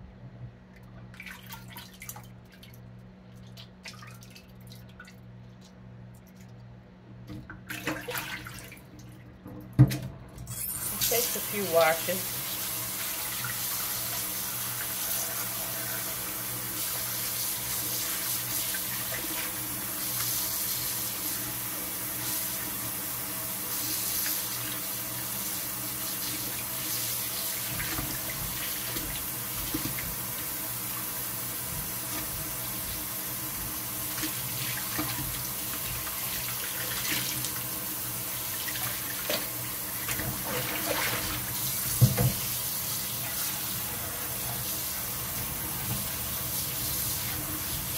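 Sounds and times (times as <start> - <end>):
tap running into a bowl: 41.9 - 42.4.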